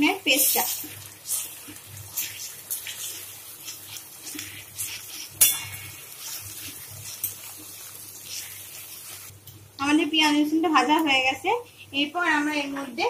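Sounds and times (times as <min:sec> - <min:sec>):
onions frying in oil: 0:00.0 - 0:13.0
metal spatula scraping a pan: 0:02.1 - 0:09.3.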